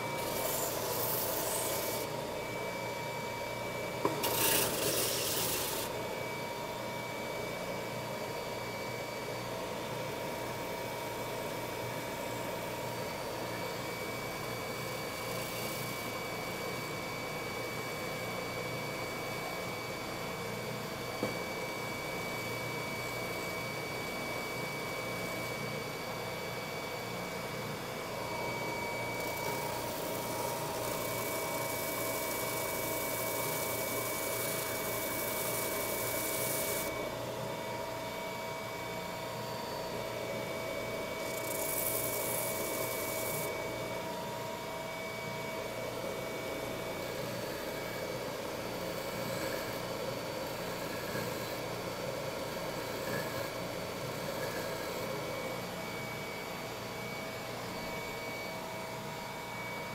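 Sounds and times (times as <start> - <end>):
sander motor whine: 0.0 - 12.0, 12.8 - 59.9.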